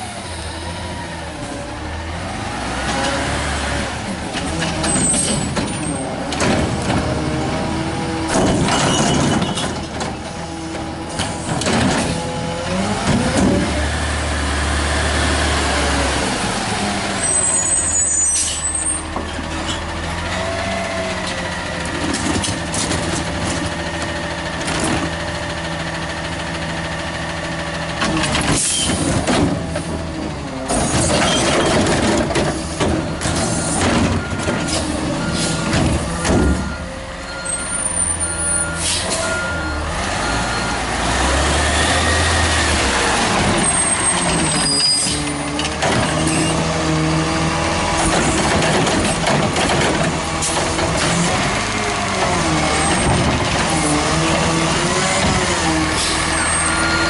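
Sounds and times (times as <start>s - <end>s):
garbage truck engine running: 0.0s - 57.0s
air brake hisses: 38.8s - 39.2s.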